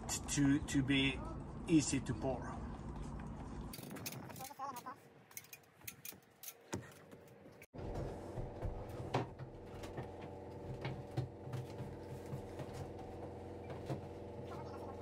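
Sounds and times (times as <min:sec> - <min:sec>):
steady machine hum: 0:07.8 - 0:15.0.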